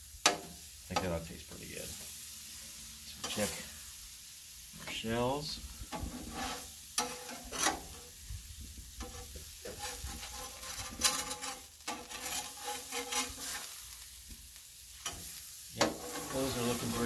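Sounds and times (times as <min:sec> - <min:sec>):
food sizzling on a griddle: 0:00.0 - 0:17.0
metal spatula scraping griddle: 0:03.2 - 0:03.8, 0:05.8 - 0:14.0, 0:14.8 - 0:17.0.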